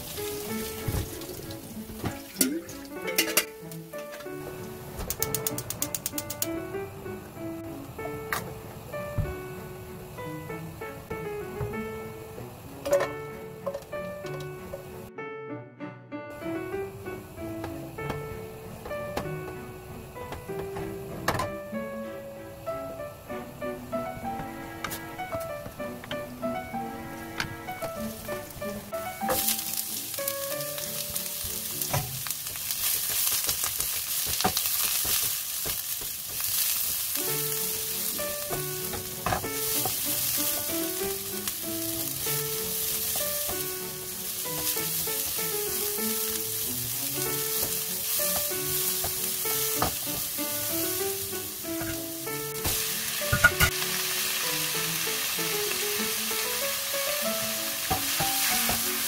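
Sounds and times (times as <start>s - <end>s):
vegetables sizzling in hot oil: 0.0s - 6.2s, 27.6s - 59.0s.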